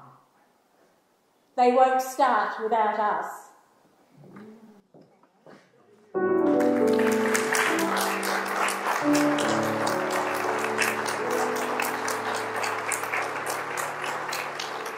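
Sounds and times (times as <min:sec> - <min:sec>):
slow instrumental music: 0:06.2 - 0:14.9
audience applauding: 0:06.4 - 0:14.9.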